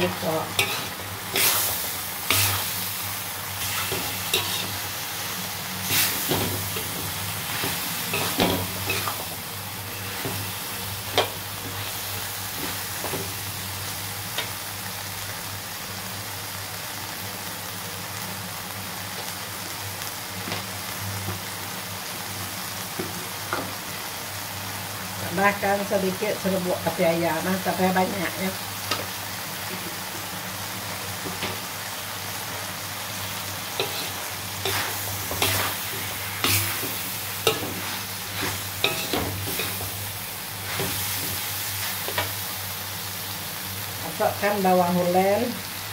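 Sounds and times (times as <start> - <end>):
food sizzling in a wok: 0.0 - 45.9
metal spatula scraping pan: 0.6 - 1.7, 33.8 - 39.9.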